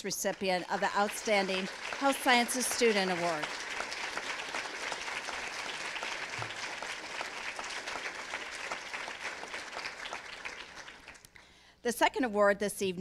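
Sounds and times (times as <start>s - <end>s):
audience applauding: 0.0s - 11.3s.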